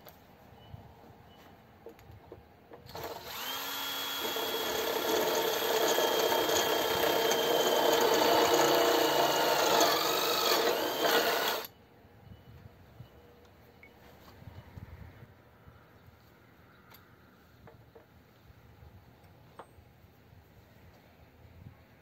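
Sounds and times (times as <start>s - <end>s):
impact driver motor whining: 2.9s - 11.7s.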